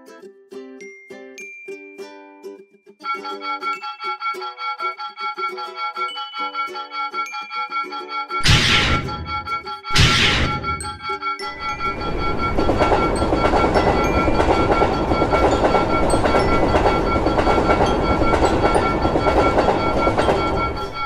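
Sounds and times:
crossing bell ringing: 6.2 - 21.0
train wheels clattering: 8.4 - 21.0.

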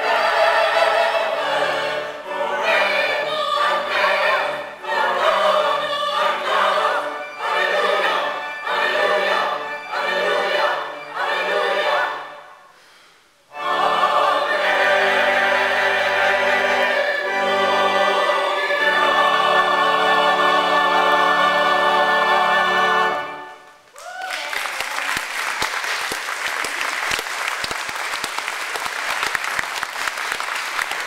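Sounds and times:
church choir singing: 0.0 - 12.8, 13.5 - 23.8
congregation applauding: 23.9 - 31.0.

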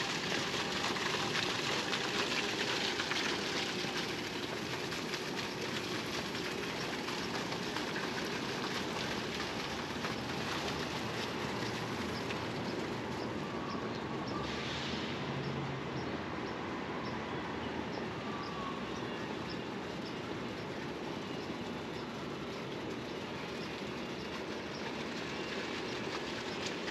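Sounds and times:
city background noise: 0.0 - 26.9.

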